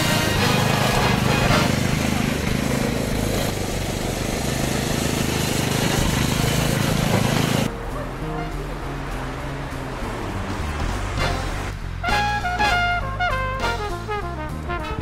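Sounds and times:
snowmobile engine running: 0.0 - 7.7.

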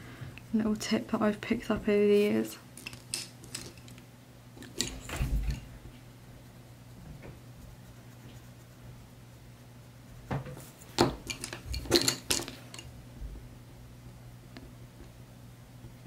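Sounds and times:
pencils clicking together: 2.8 - 4.0.

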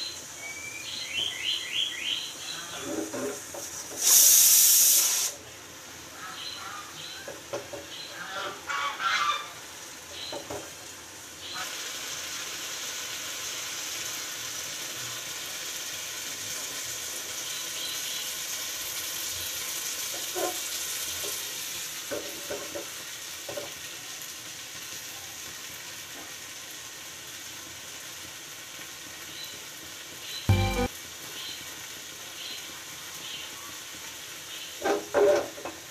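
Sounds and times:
fish sizzling in a pan: 0.0 - 6.1, 9.1 - 35.9
stirring knocks and scrapes on pan: 2.8 - 4.0, 20.0 - 23.8, 34.8 - 35.9.

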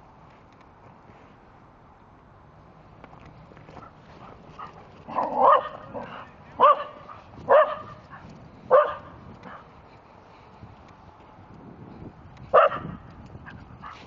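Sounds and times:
dog barking: 5.1 - 9.7, 12.5 - 13.0.

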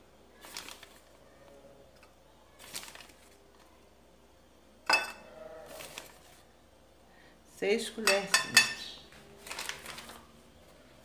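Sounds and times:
metal spoon clinking against bowl: 4.9 - 5.3, 8.0 - 8.9.

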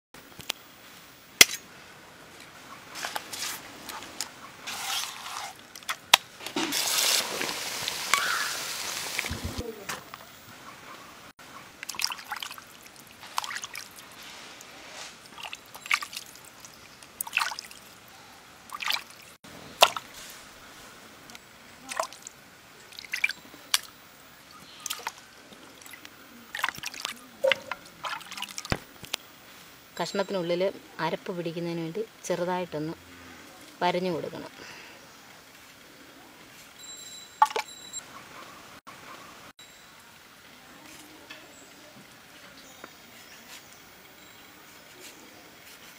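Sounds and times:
wet splashes and squelches: 11.8 - 18.1, 18.7 - 20.2, 21.8 - 23.9, 24.8 - 28.9, 37.4 - 37.7.

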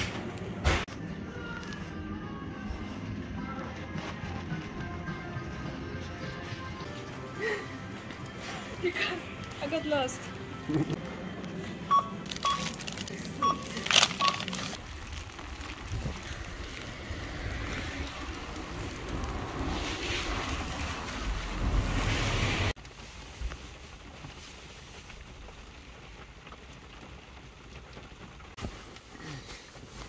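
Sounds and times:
rain on a windscreen: 7.0 - 30.0
self-checkout scanner beeps: 11.9 - 12.8, 13.4 - 14.8
packaging handling: 12.2 - 16.9
wind buffeting microphone: 15.0 - 22.0.

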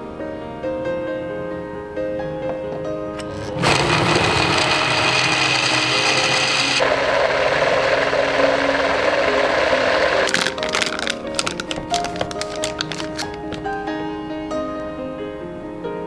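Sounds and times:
soft piano music: 0.0 - 3.6, 10.1 - 16.0
blender motor running: 3.2 - 11.5.

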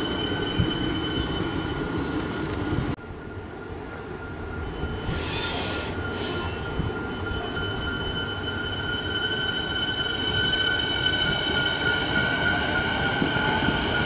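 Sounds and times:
train rumbling: 0.0 - 14.0
high-pitched whine: 4.5 - 14.0.

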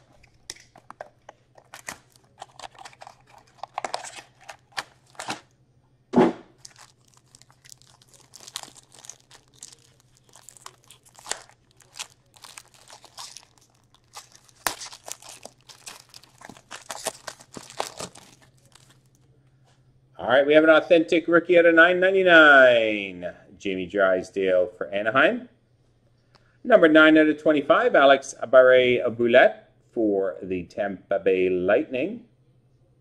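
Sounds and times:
box clicks and crackles: 0.0 - 5.4, 6.6 - 19.1
foil pack crinkling and tearing: 0.0 - 5.4, 6.6 - 19.3
thump: 6.2 - 6.5.

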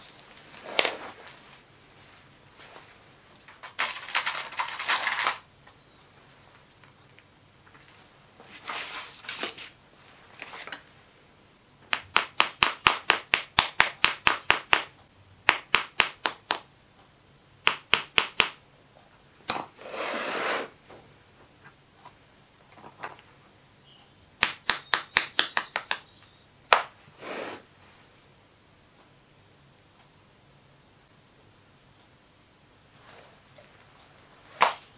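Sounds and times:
short rustling scrape: 0.4 - 3.0, 7.9 - 10.7, 19.8 - 20.8.

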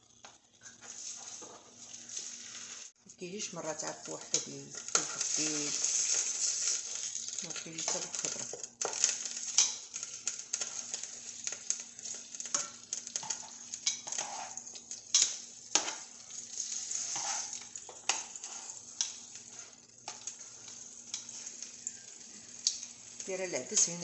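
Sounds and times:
meat sizzling in a pan: 0.0 - 24.0
metal tongs clicking on a pan: 3.8 - 16.8, 17.5 - 19.4, 20.0 - 22.0, 22.6 - 24.0.

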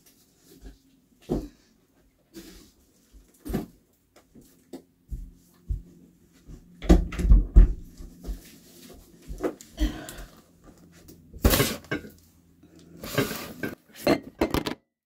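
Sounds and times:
objects knocking and clattering: 13.0 - 14.9.

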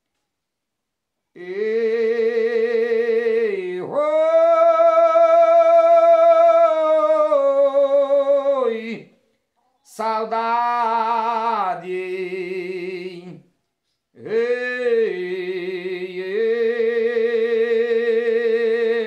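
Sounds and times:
man singing wordless held notes: 1.3 - 9.2, 9.8 - 19.0.

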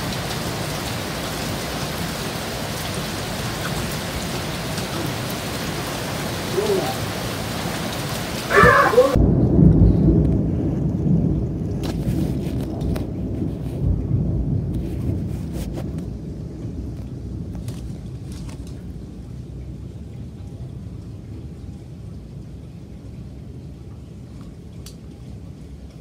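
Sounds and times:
heavy rain hissing: 0.0 - 9.2
thunder rumble: 0.0 - 20.3.

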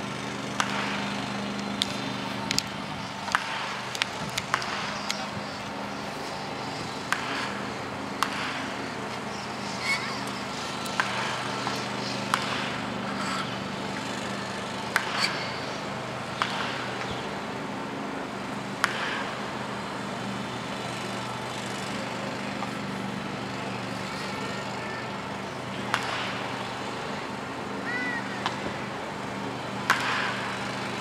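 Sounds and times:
bat hitting baseballs: 0.4 - 17.4, 18.7 - 19.9, 25.9 - 26.6, 29.8 - 30.8.

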